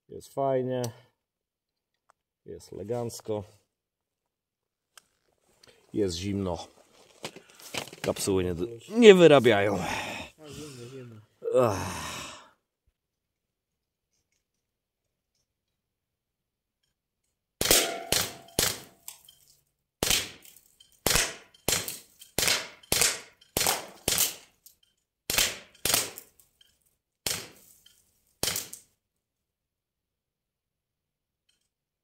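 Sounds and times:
bb gun shots: 17.6s - 18.9s, 20.0s - 20.4s, 21.0s - 24.4s, 25.3s - 26.2s, 27.3s - 27.6s.

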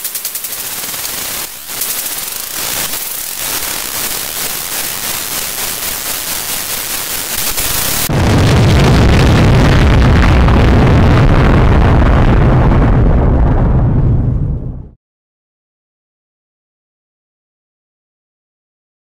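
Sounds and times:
loud glitchy static hiss: 0.0s - 8.4s
deep rumble: 7.9s - 15.0s.

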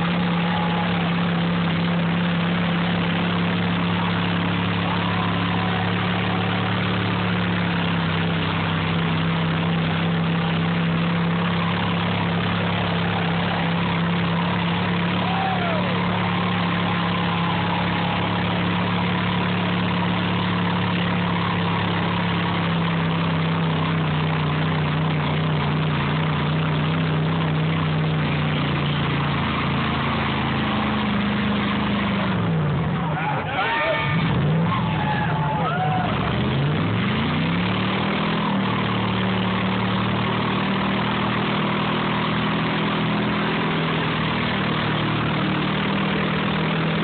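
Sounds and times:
engine revving high: 0.0s - 47.0s
tires churning mud: 0.0s - 47.0s.

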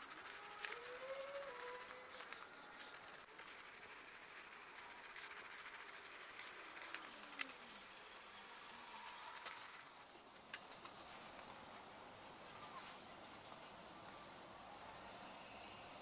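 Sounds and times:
spray-paint can hissing: 0.0s - 9.9s.

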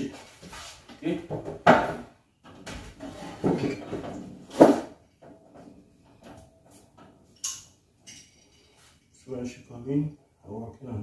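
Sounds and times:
objects knocking and rustling: 0.4s - 9.1s.

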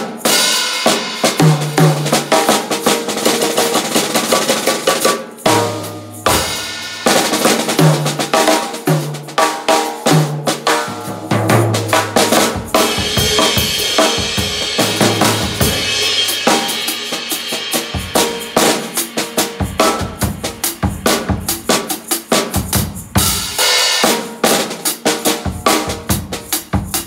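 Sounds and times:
cymbal wash: 0.0s - 2.3s, 10.9s - 22.2s
maracas shaker rattle: 0.0s - 9.4s, 10.3s - 23.6s, 25.7s - 27.0s
drum kit groove: 0.0s - 27.0s.

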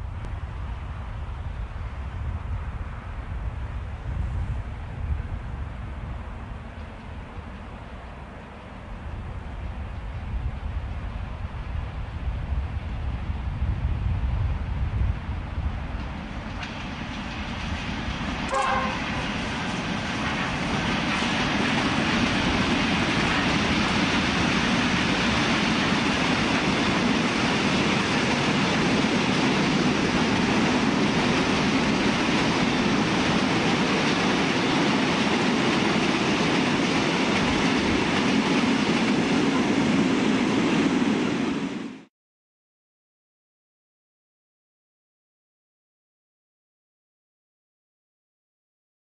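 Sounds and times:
train rumbling on rails: 0.0s - 42.1s
train horn blast: 18.5s - 19.3s.

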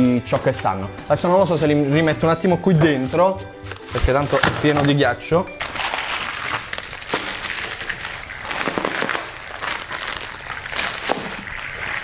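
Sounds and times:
paper and plastic crumpling: 3.0s - 12.0s.

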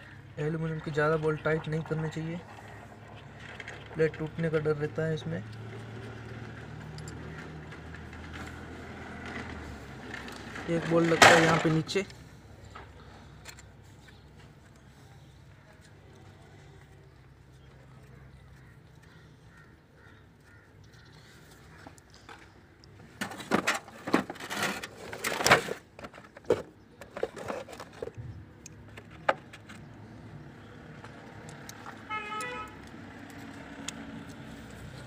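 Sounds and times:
metallic clinks of tools and bolts: 6.8s - 7.3s
car horn toot: 32.0s - 32.8s.

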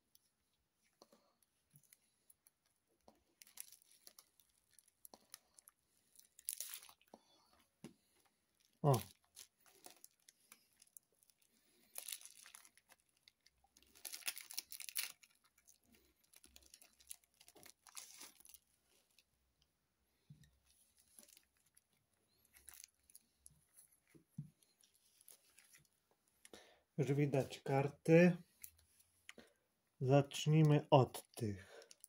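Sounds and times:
plastic bags crinkling: 3.2s - 7.1s, 8.6s - 19.3s, 21.0s - 23.3s, 31.8s - 32.0s.

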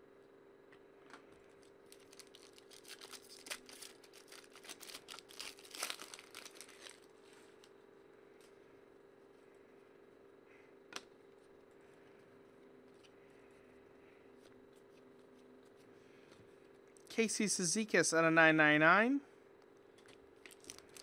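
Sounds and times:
foil wrapper tearing and crinkling: 1.8s - 7.1s, 20.5s - 21.0s.

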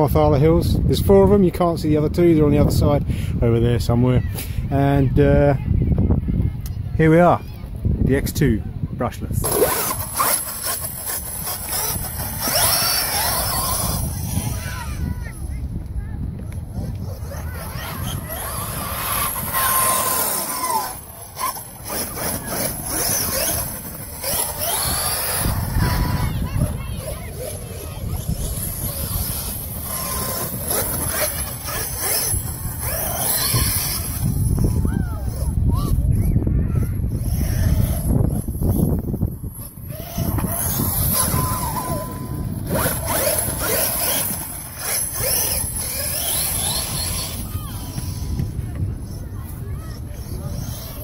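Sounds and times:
wind rumble on microphone: 0.0s - 51.0s
electric motor whining: 9.4s - 15.8s, 16.4s - 36.1s, 36.9s - 49.5s.

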